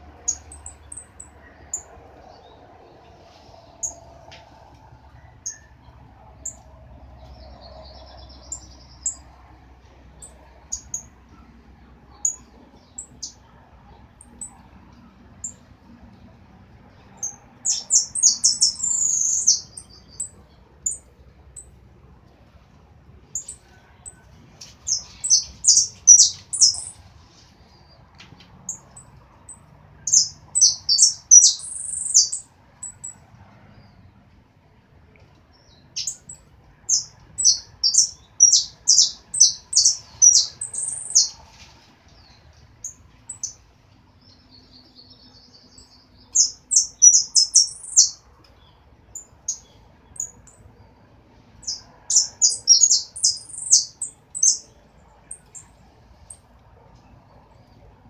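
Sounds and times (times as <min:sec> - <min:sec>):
finch chirping: 0:17.2 - 0:21.0, 0:24.8 - 0:27.0, 0:29.5 - 0:33.2, 0:36.0 - 0:41.4, 0:45.0 - 0:48.2, 0:51.6 - 0:54.7.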